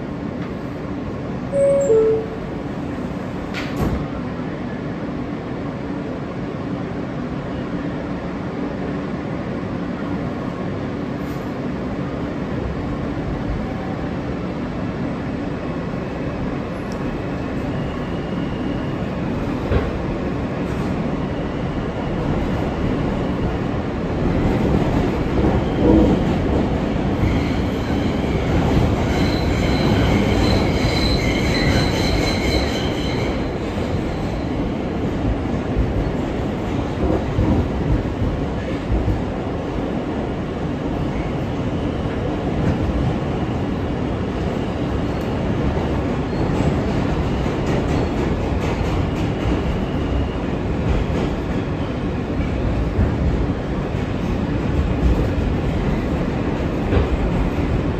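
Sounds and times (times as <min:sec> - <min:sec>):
train wheels rumbling on rails: 0:00.0 - 0:57.9
metallic wheel squeal: 0:29.1 - 0:33.5.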